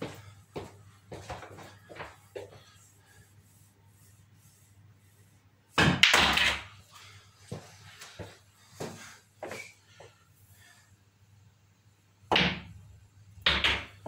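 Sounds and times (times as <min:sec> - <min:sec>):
pool balls clacking: 0:13.4 - 0:14.0.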